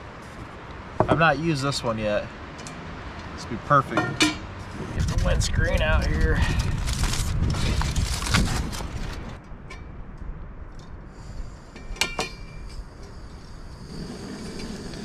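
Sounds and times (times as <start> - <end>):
aluminium foil crinkling: 6.6 - 9.4.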